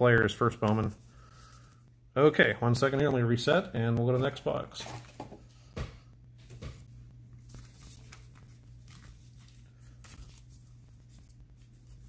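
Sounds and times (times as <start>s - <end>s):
faint steady hum: 0.0s - 12.0s
cards rustling and tapping: 7.4s - 12.0s.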